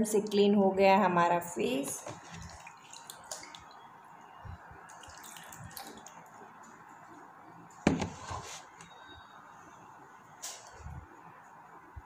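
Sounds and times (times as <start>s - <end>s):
water dripping into plastic tub: 1.9s - 3.8s.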